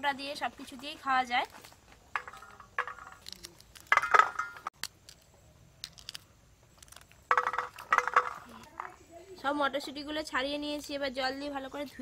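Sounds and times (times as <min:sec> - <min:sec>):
pea pods snapping open: 0:03.2 - 0:03.9, 0:04.8 - 0:07.8.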